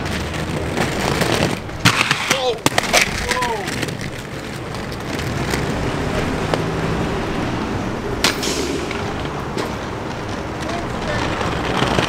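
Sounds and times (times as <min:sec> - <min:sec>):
inline skate wheels rolling on concrete: 0:00.0 - 0:12.0
sharp clack: 0:08.2 - 0:12.0.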